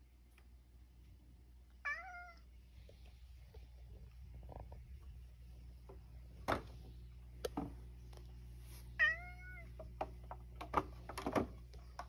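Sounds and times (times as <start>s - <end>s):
cat meowing: 1.8s - 2.5s, 9.0s - 9.7s.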